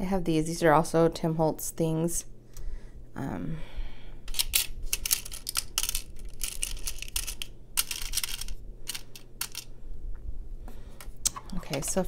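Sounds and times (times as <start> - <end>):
metal charms clinking in plastic: 4.3 - 9.7.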